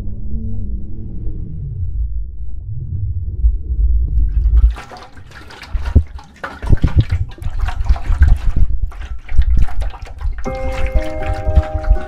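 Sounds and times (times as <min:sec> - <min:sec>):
heavy low rumble: 0:00.0 - 0:04.7
water splashing and sloshing: 0:04.2 - 0:12.0.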